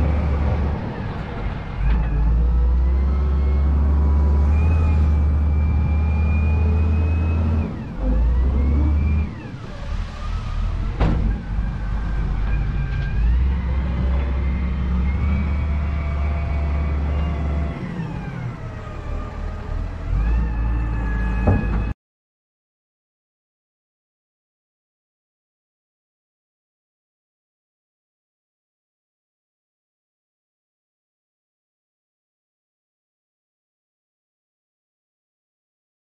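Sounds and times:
loader diesel engine revving: 0:00.0 - 0:22.0.

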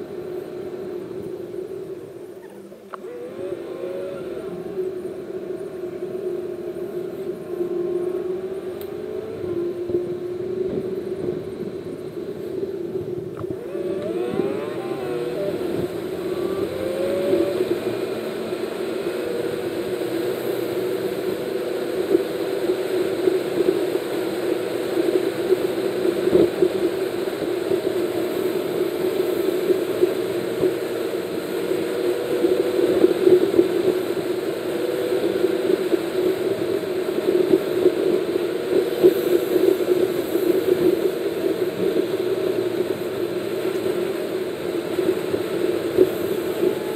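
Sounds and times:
engine and tyre drone: 0:00.0 - 0:46.9
rising engine whine: 0:00.0 - 0:46.9.

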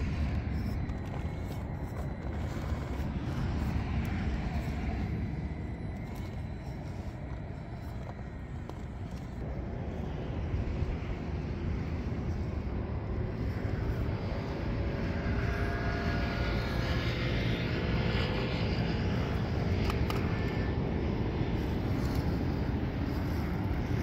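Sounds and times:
small electric motor whining: 0:00.0 - 0:24.0
steady low rumble: 0:00.0 - 0:24.0.

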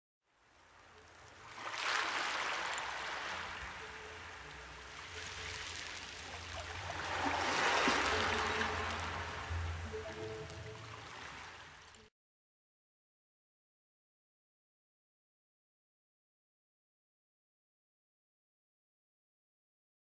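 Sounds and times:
rushing water: 0:00.4 - 0:12.1
low steady hum: 0:02.8 - 0:12.0.

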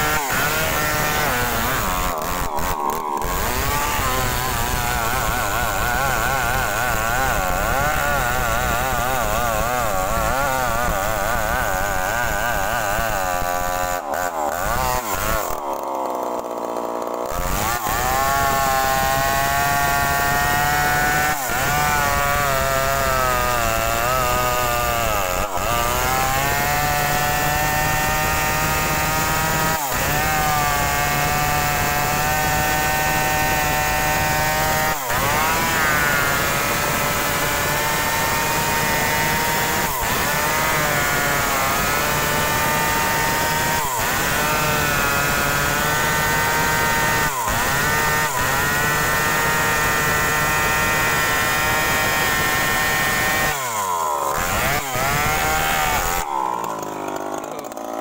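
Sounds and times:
chainsaw cutting wood: 0:00.0 - 0:58.0.

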